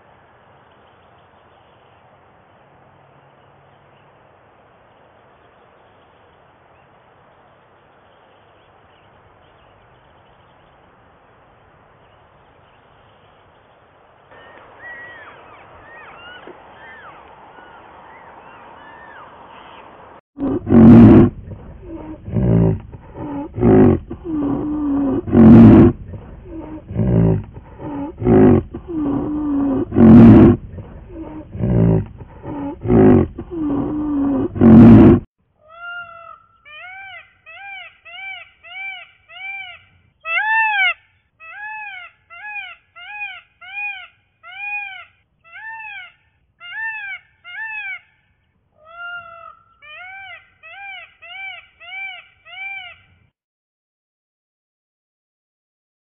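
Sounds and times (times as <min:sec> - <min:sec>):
peacock calls: 0:14.3 - 0:53.2
rhinoceros calling harshly: 0:20.4 - 0:48.2.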